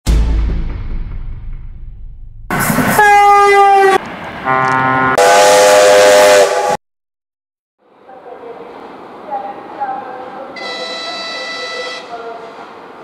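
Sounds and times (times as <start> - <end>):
train whistle blasts: 3.0 - 6.8, 10.6 - 12.2.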